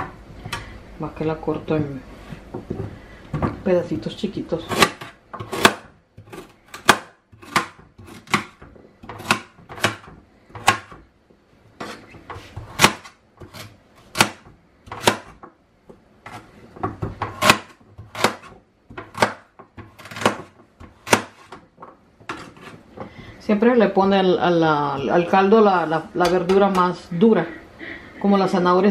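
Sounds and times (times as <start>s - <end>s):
knife chopping on cutting board: 4.7s - 11.0s, 11.8s - 15.5s, 16.3s - 21.6s.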